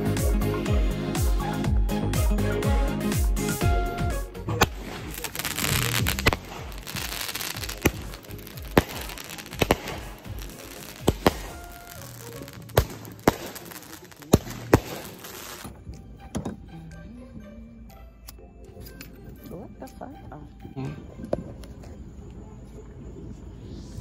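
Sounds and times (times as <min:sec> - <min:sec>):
fireworks crackling hiss: 0:04.5 - 0:15.8
fireworks bangs and pops: 0:04.5 - 0:15.9.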